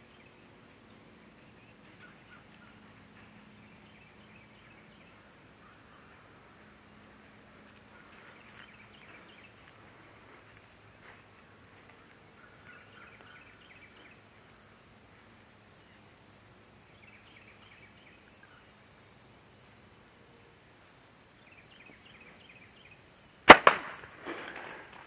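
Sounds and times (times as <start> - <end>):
faint bird chirps: 0.0 - 6.8, 11.2 - 14.8, 16.8 - 18.8
bow shot sharp cracks: 23.4 - 25.0.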